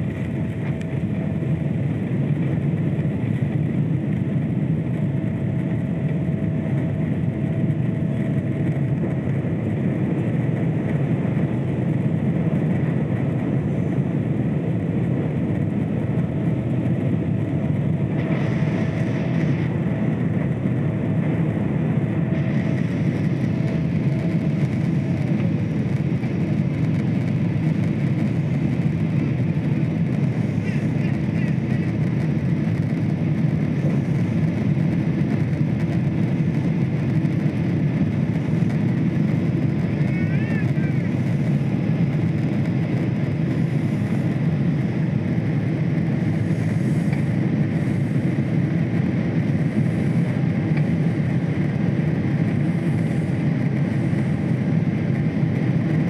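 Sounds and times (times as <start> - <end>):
faint engine whine: 0.0 - 56.0
jet engine rumble in cabin: 0.0 - 56.0.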